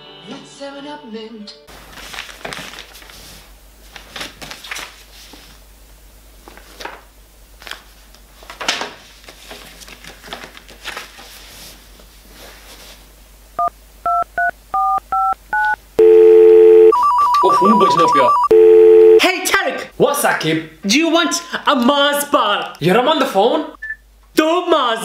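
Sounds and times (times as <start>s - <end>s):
paper rustling: 1.7s - 5.6s, 6.4s - 13.1s
phone keypad beeps: 13.6s - 19.2s
phone ringing tone: 14.1s - 19.2s.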